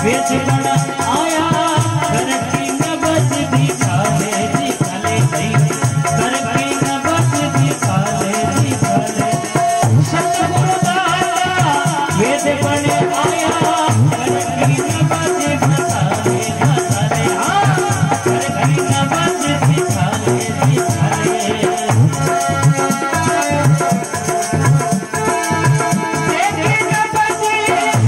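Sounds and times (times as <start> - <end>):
drum beat: 0.0 - 28.0
harmonium melody: 0.0 - 28.0
rattling hand percussion: 0.0 - 28.0.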